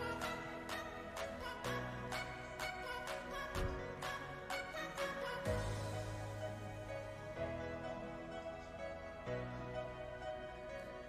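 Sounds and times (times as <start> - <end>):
soft instrumental music: 0.0 - 11.0.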